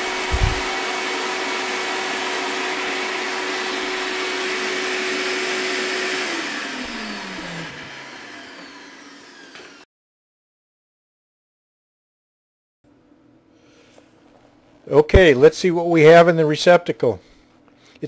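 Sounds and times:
short thump: 0.0 - 0.8
shop vacuum whining: 0.0 - 9.9
vacuum motor winding down: 0.0 - 9.9.

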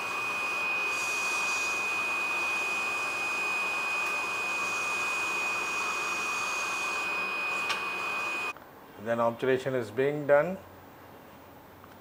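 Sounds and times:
dental suction hiss and whistle: 0.4 - 8.5.

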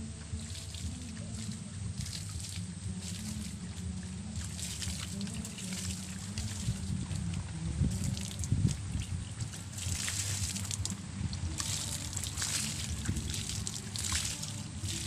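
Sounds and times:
water splashing onto soil and leaves: 0.0 - 15.0.

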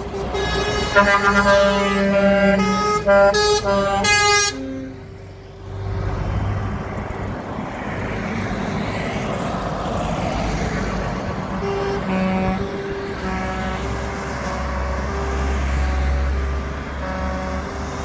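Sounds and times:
truck air horn blasts: 0.0 - 5.4, 11.5 - 18.0
heavy trucks driving past: 0.0 - 18.0.

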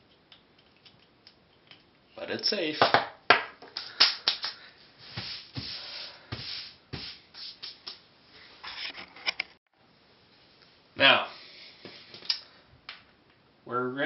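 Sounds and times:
hand sweeping wooden desk: 4.8 - 8.0.

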